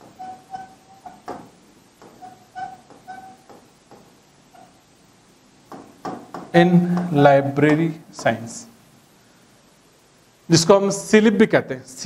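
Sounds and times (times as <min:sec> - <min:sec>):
marker squeaking on whiteboard: 0:00.0 - 0:04.9.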